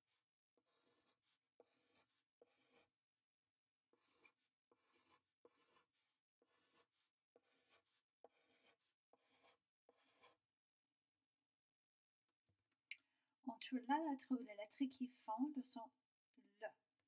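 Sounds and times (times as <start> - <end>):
pencil scratching on paper: 0.0 - 10.6.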